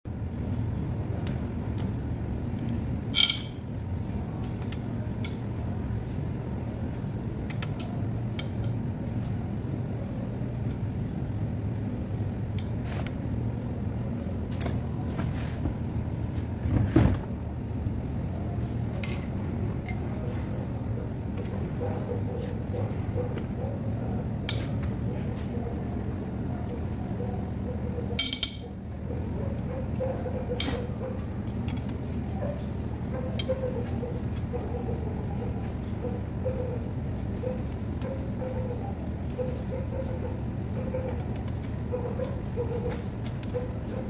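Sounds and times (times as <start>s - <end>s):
socket wrench clicking on bolts: 3.2s - 3.5s.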